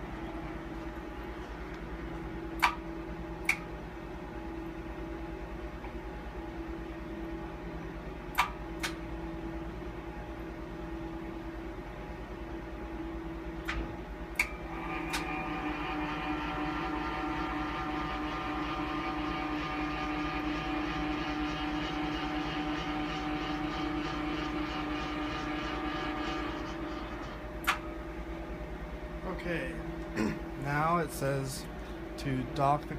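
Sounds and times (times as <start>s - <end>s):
low machine hum: 0.0s - 32.9s
multi-tone motor whine: 14.3s - 28.7s
machine clicks: 15.1s - 15.3s.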